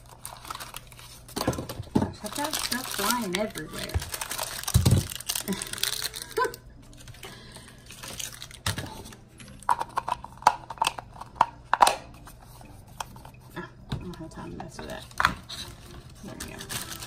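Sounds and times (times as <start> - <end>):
plastic packaging crinkling: 0.0 - 11.5, 15.0 - 17.0.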